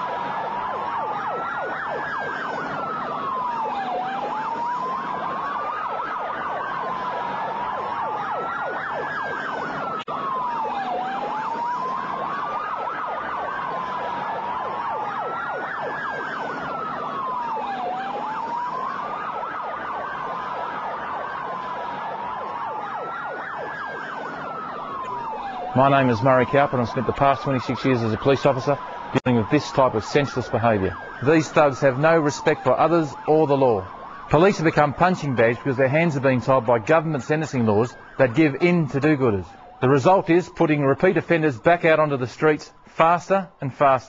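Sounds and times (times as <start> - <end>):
emergency vehicle siren wailing: 0.0 - 44.0.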